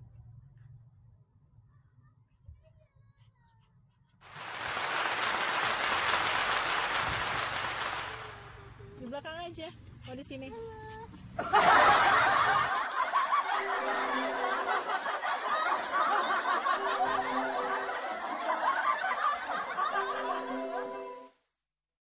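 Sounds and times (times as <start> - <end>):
laughter: 11.4 - 21.1
background music: 13.4 - 21.4.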